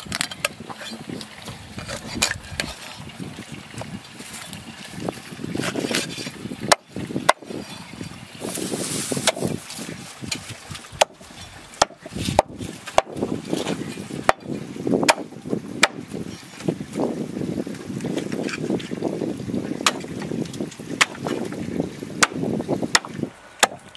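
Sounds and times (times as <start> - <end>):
rustling handling noise: 8.4 - 10.9
chopping strikes on wood: 11.8 - 13.2, 14.3 - 16.0, 19.8 - 20.1, 21.0 - 21.4, 22.2 - 23.9.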